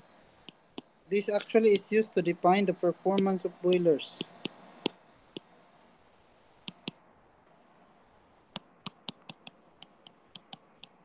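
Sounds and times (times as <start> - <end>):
stylus clicking on tablet screen: 6.6 - 7.0, 8.5 - 11.0.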